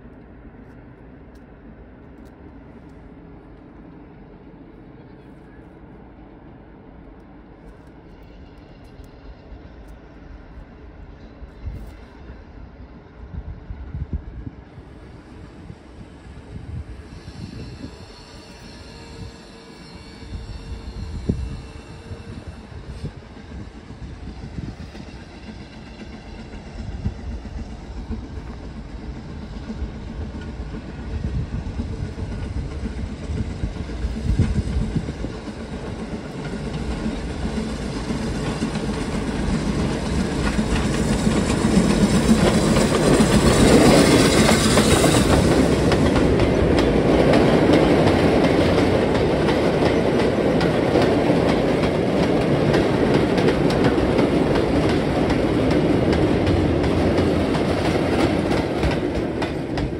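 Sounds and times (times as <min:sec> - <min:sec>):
steam locomotive passing: 0:00.0 - 0:59.9
steam hiss: 0:14.8 - 0:46.6.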